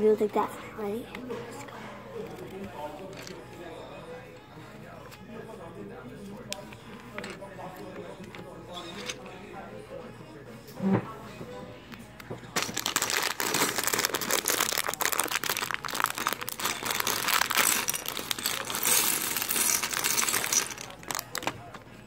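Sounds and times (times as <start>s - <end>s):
plastic bag crinkling: 12.6s - 21.6s.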